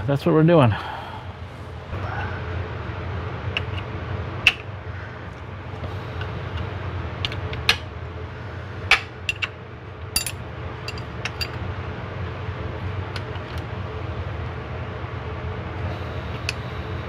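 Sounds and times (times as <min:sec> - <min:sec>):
low hum: 0:00.0 - 0:17.0
wrench clinking on metal nuts: 0:10.2 - 0:11.6.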